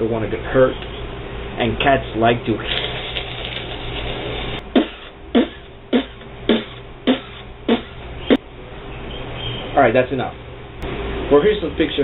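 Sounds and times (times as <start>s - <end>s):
sharp percussive mouth sounds: 4.8s - 8.4s.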